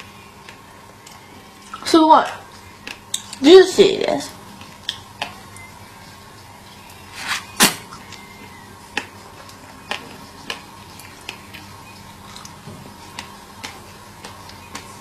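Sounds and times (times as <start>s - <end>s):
lip smacks and clicks: 12.3s - 15.0s.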